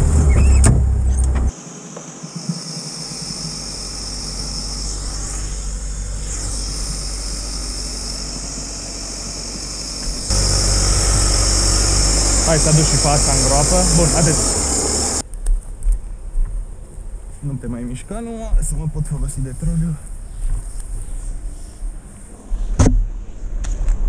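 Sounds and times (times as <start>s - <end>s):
buggy engine running: 0.0s - 1.5s, 2.6s - 15.2s
steady high hiss: 1.5s - 15.2s.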